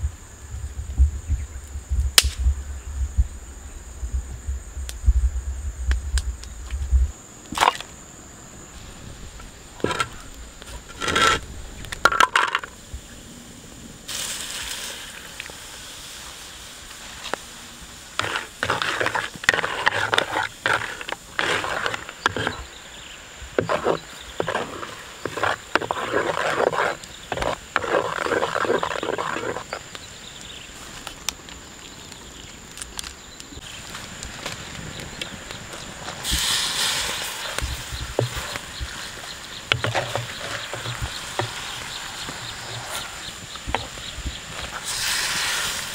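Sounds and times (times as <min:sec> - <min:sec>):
wooden spatula scraping wok: 0:09.8 - 0:11.4, 0:18.2 - 0:22.8, 0:23.6 - 0:29.9, 0:36.3 - 0:44.0
fat sizzling in hot oil: 0:14.1 - 0:22.4, 0:44.7 - 0:45.9.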